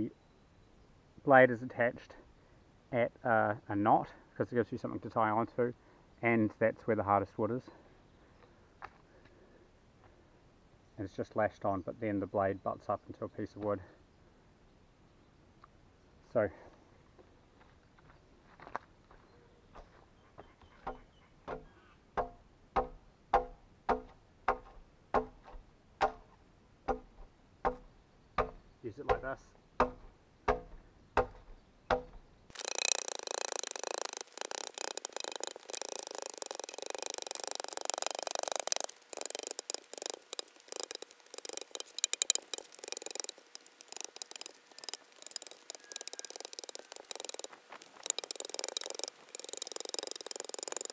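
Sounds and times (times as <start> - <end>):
adze chopping into log: 20.8 - 26.3, 26.9 - 32.6
wood cracking and splintering: 31.2 - 50.9.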